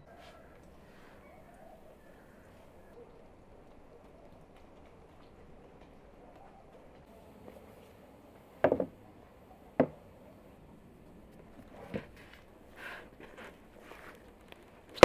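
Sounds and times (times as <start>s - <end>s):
wooden knocks on board: 8.6s - 8.9s
flour rustling: 11.3s - 15.0s.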